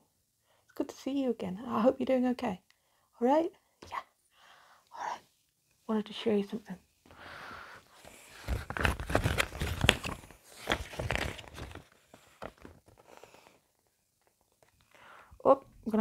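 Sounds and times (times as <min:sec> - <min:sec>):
paper rustling and crinkling: 0:07.9 - 0:13.5.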